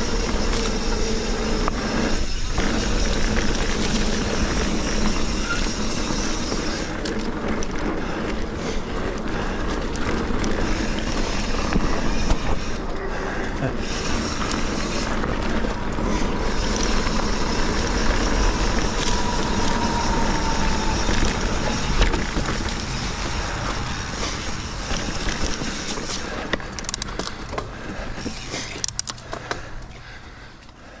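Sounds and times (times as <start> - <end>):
bike clicks and rattles: 0.0 - 31.0
bike tyres on dirt: 0.0 - 31.0
wind rushing over microphone: 14.3 - 26.2.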